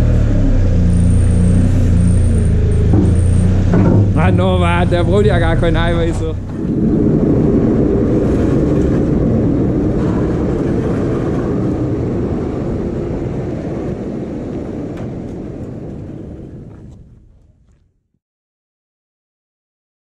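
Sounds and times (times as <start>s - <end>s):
engine low rumble: 0.0s - 18.2s.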